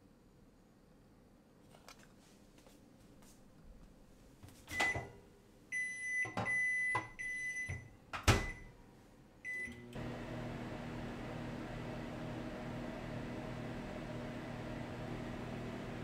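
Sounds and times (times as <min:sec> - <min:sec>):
oven control beeps: 0:04.7 - 0:08.7, 0:09.5 - 0:10.0
oven fan humming: 0:09.8 - 0:16.0.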